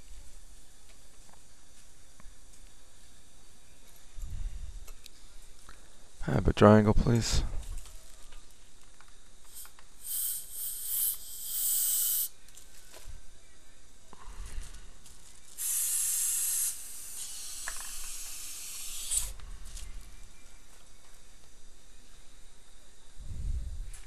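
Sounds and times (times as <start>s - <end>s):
air syringe hissing bursts: 9.5s - 12.3s, 15.6s - 19.4s.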